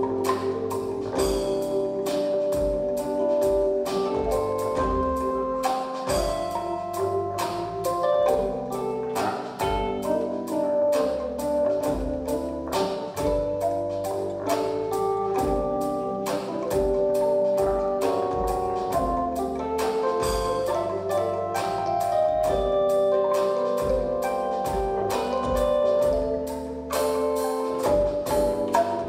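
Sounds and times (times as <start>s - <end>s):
bamboo tubes struck: 0.0s - 10.2s, 23.3s - 29.0s
electric bass: 0.0s - 29.0s
percussion beat: 0.0s - 29.0s.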